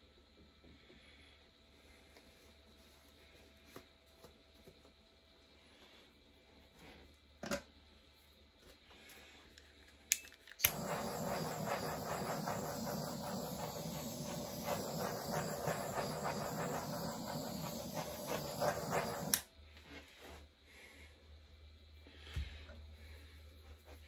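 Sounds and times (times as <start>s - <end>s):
torch ignition click: 10.1s - 19.5s
torch flame hissing: 10.6s - 19.5s.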